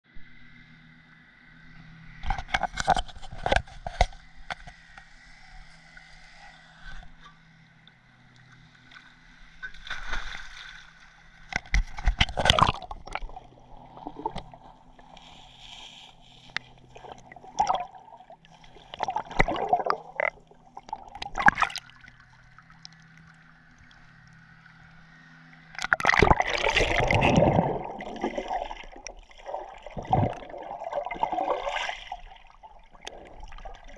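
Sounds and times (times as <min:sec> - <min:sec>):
faint steady low hum: 0:00.1 - 0:33.9
muffled underwater splashing and bubbling: 0:11.5 - 0:23.4, 0:25.8 - 0:33.9.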